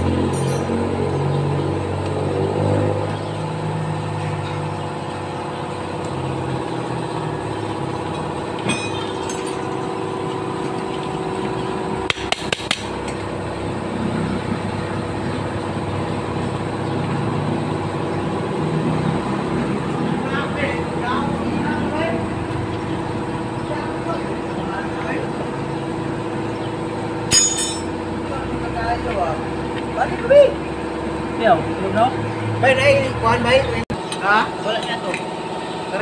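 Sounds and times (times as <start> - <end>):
steady mechanical drone: 0.0 - 36.0
metal taps on engine casing: 12.0 - 13.2.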